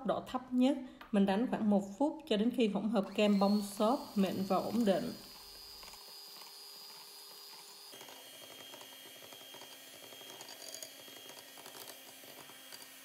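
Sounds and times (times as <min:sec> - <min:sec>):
electric hand mixer whine: 0:03.0 - 0:13.0.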